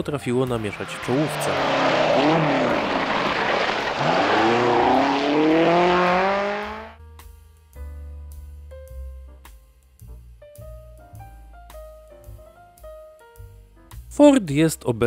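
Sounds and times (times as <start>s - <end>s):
rally car engine revving: 0.4s - 7.0s
tyres on gravel: 0.6s - 6.1s
soft piano music: 10.4s - 13.9s.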